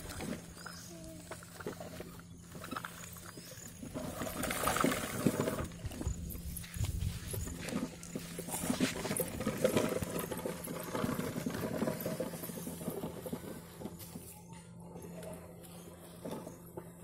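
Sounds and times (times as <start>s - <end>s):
steady low hum: 0.0s - 17.0s
sand scraping by hand: 6.5s - 10.0s.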